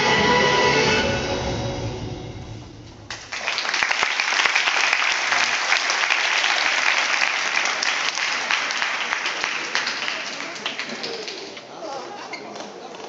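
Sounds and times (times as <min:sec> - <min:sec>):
music: 0:00.0 - 0:03.1
spectators clapping: 0:03.1 - 0:11.6.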